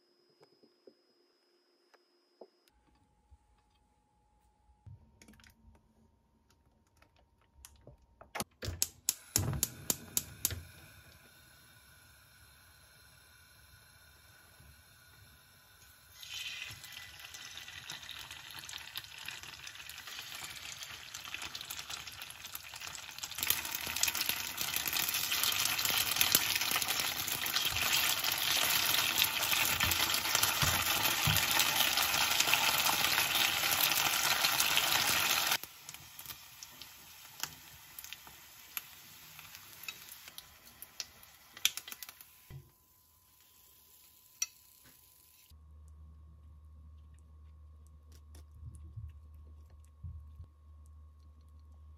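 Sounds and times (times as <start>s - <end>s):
food sizzling in oil: 15.6s - 42.5s, 43.3s - 45.5s.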